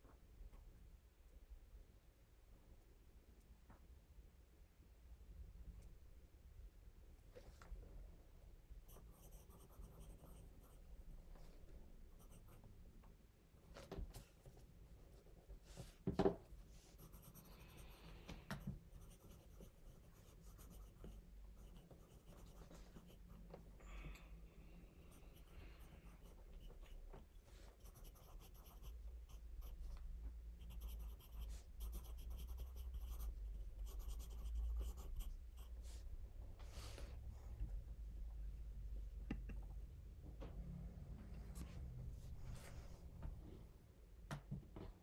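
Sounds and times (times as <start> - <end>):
pencil scratching on paper: 8.9 - 10.9, 12.2 - 12.6, 16.8 - 23.4, 25.1 - 27.0, 27.6 - 30.0, 30.6 - 36.0.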